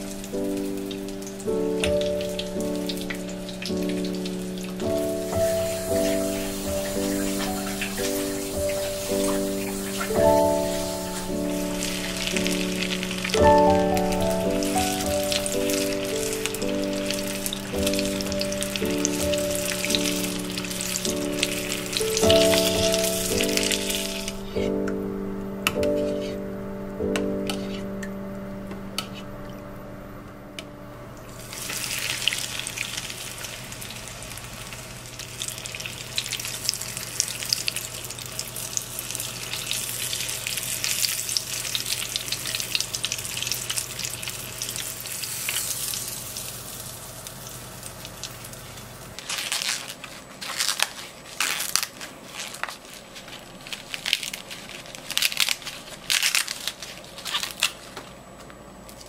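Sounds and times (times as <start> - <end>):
food deep-frying in hot oil: 0.0 - 24.4, 31.3 - 50.8
corn husks tearing: 4.8 - 24.5, 49.2 - 58.0.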